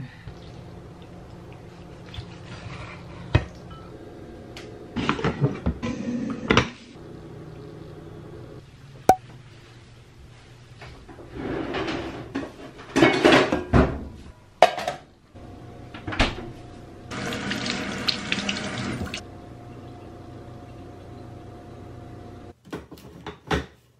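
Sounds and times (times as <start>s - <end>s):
pans and dishes clattering: 11.7s - 14.0s, 14.6s - 15.0s.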